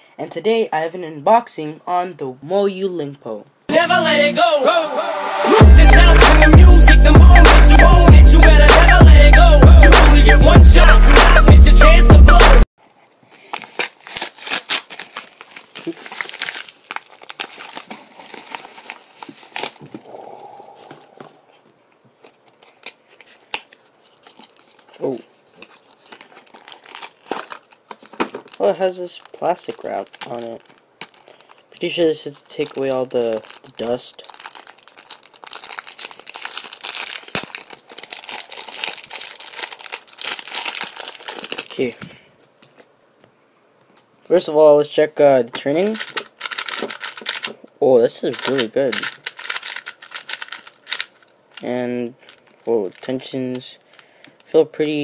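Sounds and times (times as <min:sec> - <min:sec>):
plastic bag crinkling: 0:12.8 - 0:21.4, 0:22.1 - 0:42.9, 0:45.6 - 0:54.6.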